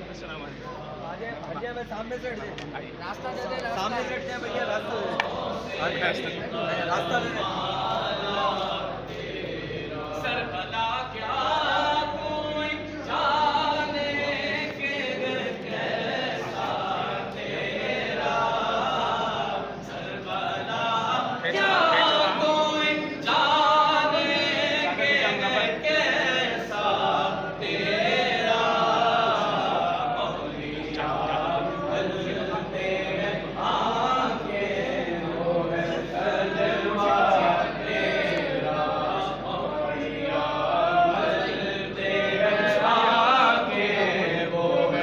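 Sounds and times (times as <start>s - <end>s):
men chanting in unison: 3.8s - 45.0s.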